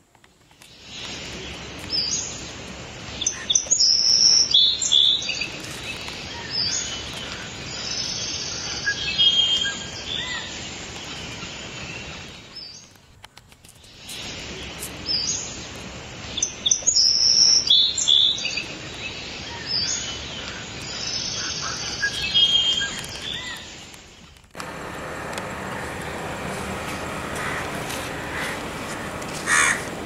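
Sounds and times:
birds chirping and singing: 13.9s - 23.9s.

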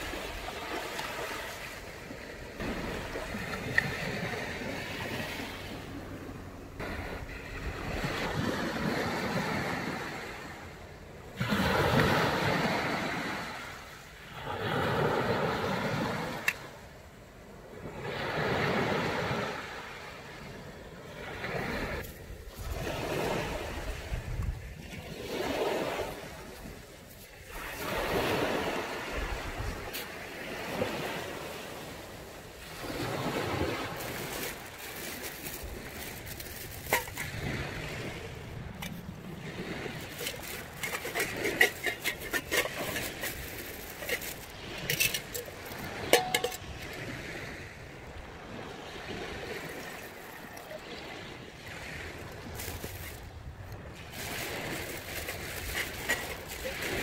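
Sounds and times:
sea waves washing onto beach: 0.0s - 57.0s.

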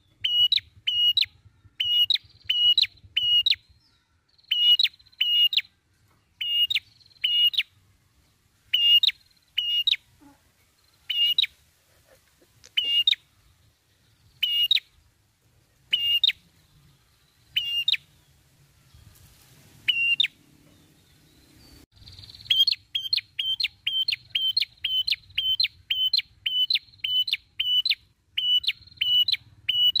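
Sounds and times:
bird singing sharp chip notes: 0.0s - 5.7s.

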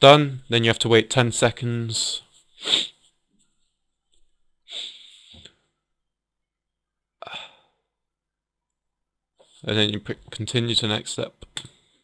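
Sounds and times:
person sniffing sharply: 2.6s - 3.1s, 4.7s - 5.4s.

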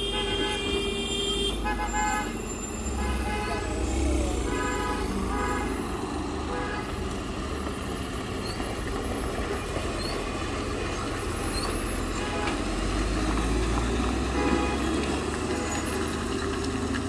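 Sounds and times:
truck horn toots: 0.0s - 7.1s, 12.0s - 13.0s, 14.2s - 16.2s
diesel truck engine labouring: 0.0s - 17.0s.

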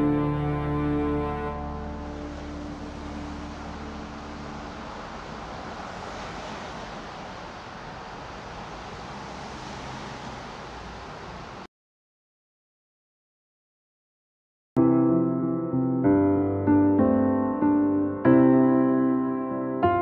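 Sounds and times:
background music: 0.0s - 5.6s, 14.8s - 20.0s.

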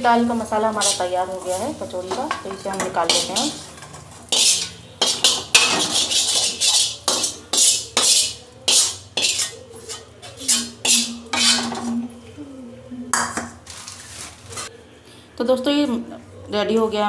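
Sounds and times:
spoon scraping metal pan: 0.4s - 12.1s.

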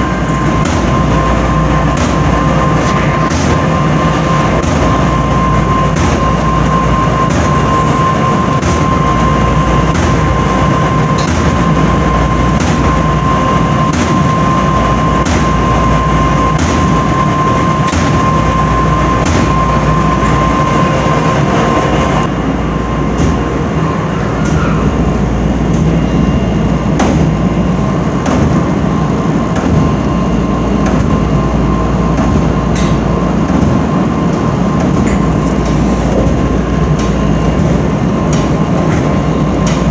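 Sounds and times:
steady high whine: 0.0s - 39.9s
tumble dryers rumbling: 0.0s - 39.9s
dryer drum clacking: 0.1s - 15.8s.

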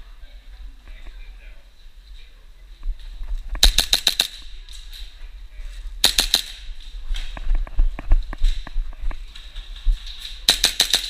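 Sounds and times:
airsoft pistol shots: 3.6s - 4.4s, 6.0s - 6.6s, 10.5s - 11.0s.

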